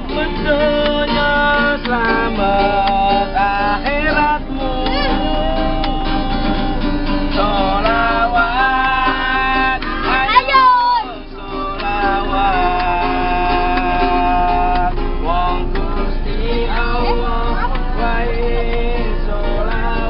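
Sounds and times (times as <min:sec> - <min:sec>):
person singing: 0:00.0 - 0:06.8
acoustic guitar strummed and plucked: 0:00.0 - 0:20.0.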